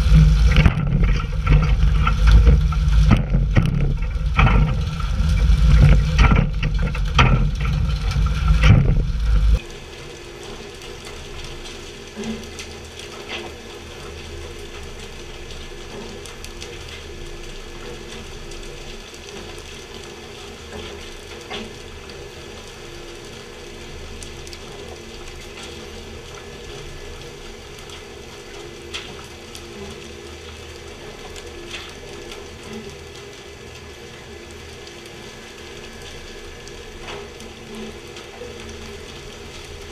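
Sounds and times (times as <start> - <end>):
boat engine humming: 0.0 - 9.6
water spray rushing: 0.0 - 9.6
wind: 0.0 - 39.9.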